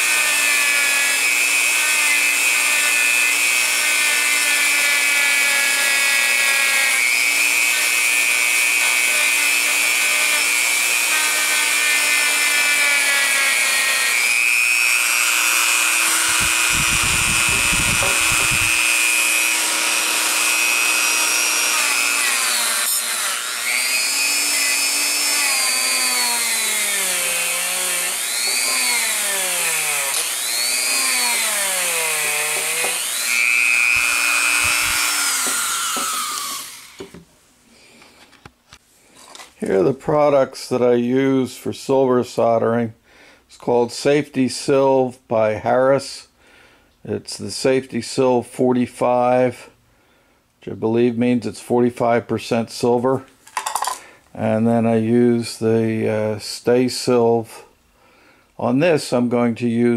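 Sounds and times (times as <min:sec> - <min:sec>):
rotary tool wire brush whining: 0:00.0 - 0:37.1.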